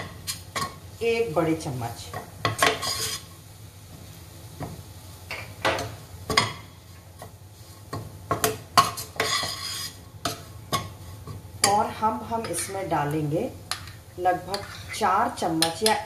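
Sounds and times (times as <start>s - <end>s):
spoon scraping thick masala: 2.5s - 3.4s, 7.2s - 11.4s, 13.7s - 15.0s.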